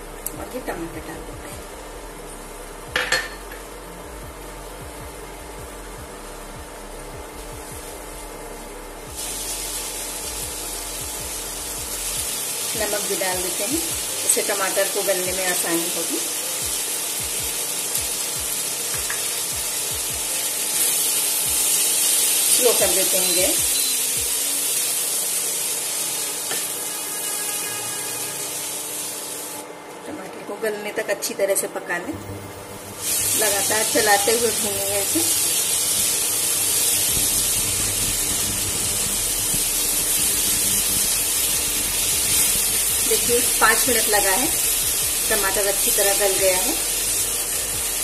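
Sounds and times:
steady hum: 0.0s - 21.9s, 31.8s - 48.0s
food sizzling in a pan: 0.0s - 29.8s, 32.1s - 48.0s.

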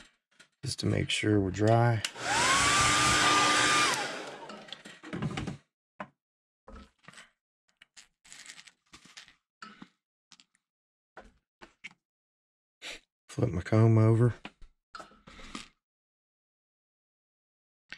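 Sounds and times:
hair dryer blowing: 2.1s - 4.7s.

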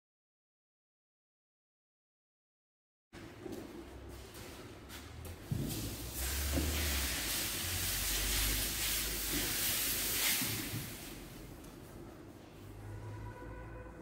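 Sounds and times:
steam cleaner hissing: 5.7s - 11.5s.

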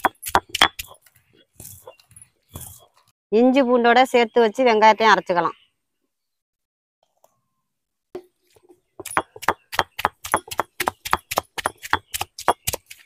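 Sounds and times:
stone roller knocking on stone slab: 9.0s - 12.8s.

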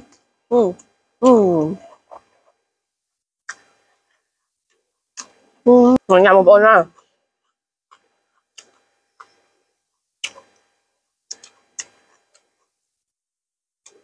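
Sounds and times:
wet mouth clicks and lip smacks: 10.2s - 10.4s.

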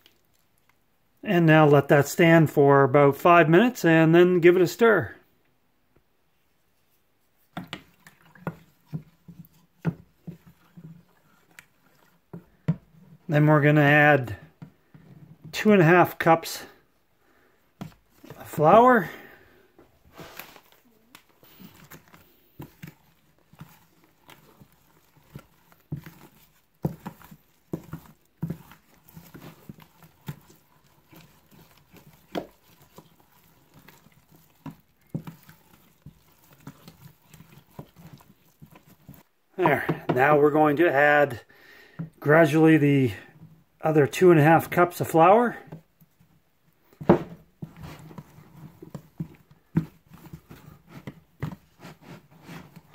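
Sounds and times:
liquid sloshing: 7.4s - 13.3s, 20.2s - 40.1s.

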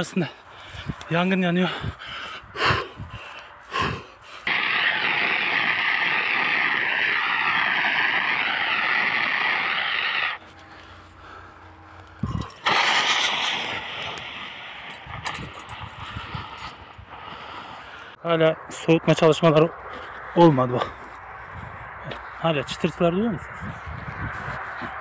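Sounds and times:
fire extinguisher hissing: 4.5s - 10.4s, 12.6s - 15.2s.

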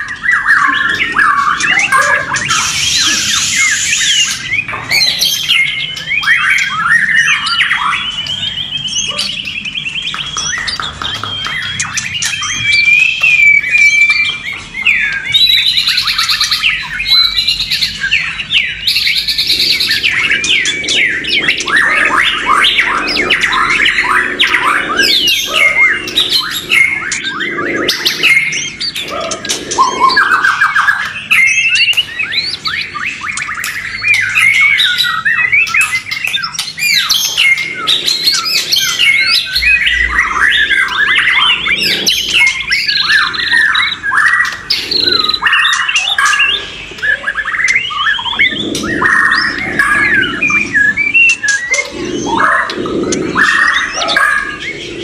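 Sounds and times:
birds singing: 0.0s - 55.0s
harsh hissy bird calls: 0.5s - 6.0s, 15.0s - 35.9s, 36.7s - 55.0s.

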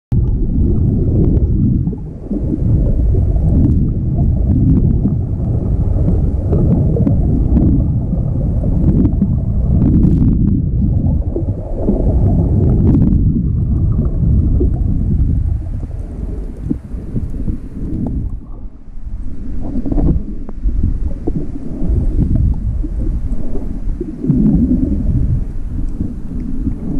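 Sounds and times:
muffled underwater rumble: 0.1s - 26.9s
faint clicks: 25.4s - 26.8s.

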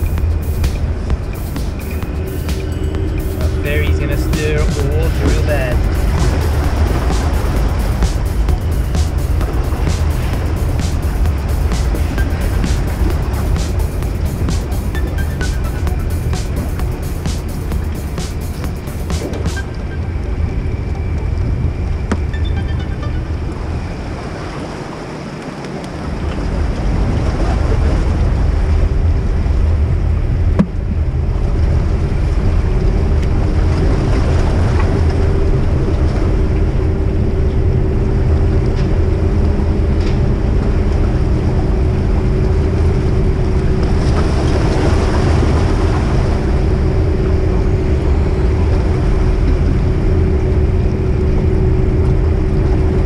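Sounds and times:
ferry engines rumbling: 0.0s - 25.2s.

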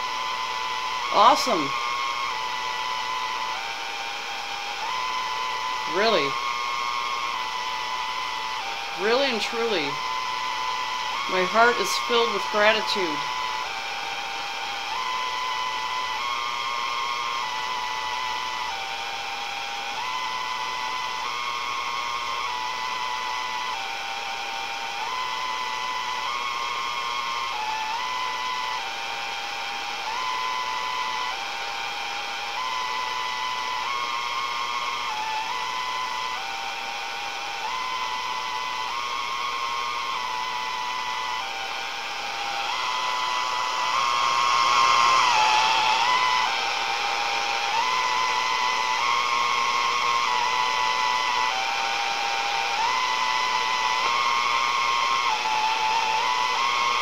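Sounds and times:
faint constant high tone: 0.0s - 57.0s
radio hiss: 0.0s - 57.0s
electronic tones stepping in pitch: 37.6s - 57.0s.

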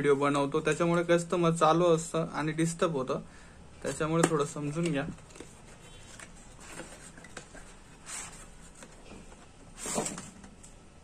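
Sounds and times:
cardboard box rustling: 5.1s - 10.4s
cardboard sliding scrape: 5.4s - 9.0s, 9.7s - 10.4s.

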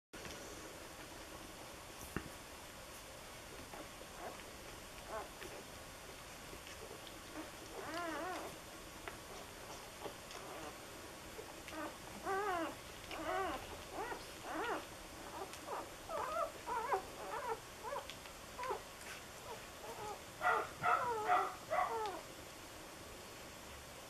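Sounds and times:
puppies squeaking and whimpering: 5.1s - 5.6s, 7.3s - 8.6s, 9.3s - 10.8s, 11.4s - 18.8s, 19.4s - 22.2s.

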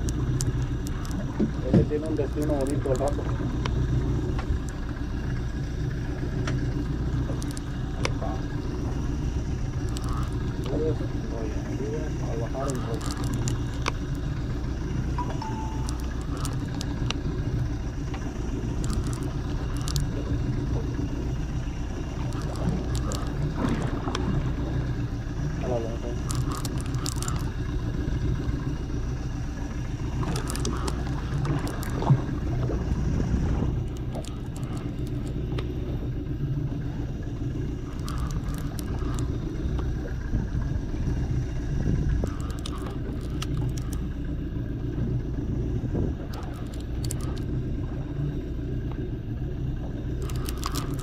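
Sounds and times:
boat motor humming: 0.0s - 51.0s
clicks and scrapes: 12.7s - 14.0s, 18.8s - 20.1s, 22.2s - 23.4s, 26.2s - 27.5s, 30.2s - 32.1s, 37.9s - 39.3s, 42.2s - 44.0s, 46.3s - 47.5s, 50.2s - 51.0s.

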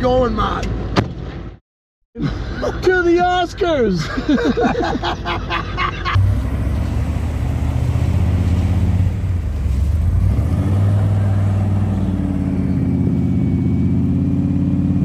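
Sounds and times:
car engine accelerating: 6.1s - 15.0s.

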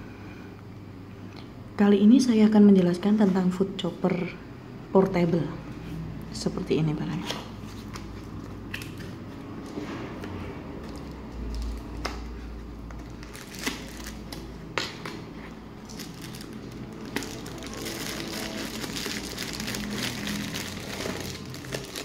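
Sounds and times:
plastic wrap crinkling: 10.8s - 22.0s.

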